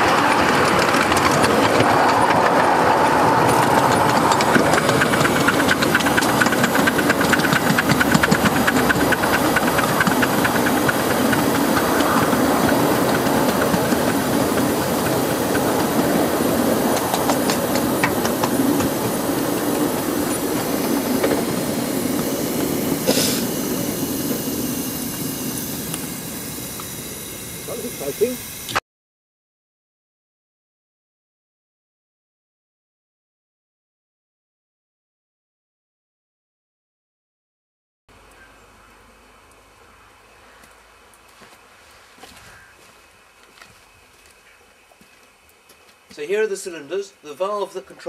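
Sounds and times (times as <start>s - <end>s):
miniature steam locomotive running: 0.0s - 28.8s, 38.1s - 48.0s
short sharp steam hiss: 21.4s - 28.8s.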